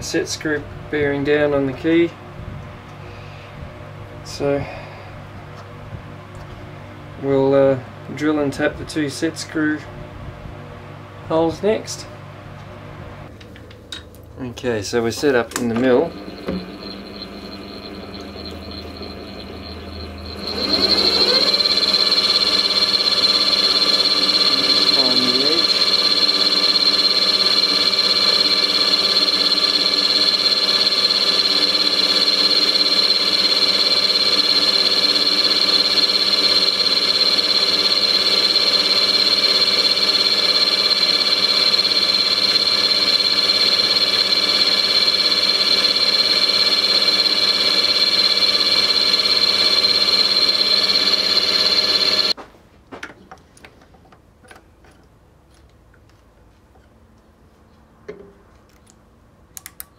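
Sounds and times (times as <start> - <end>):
milling machine motor whine: 15.2 - 52.4.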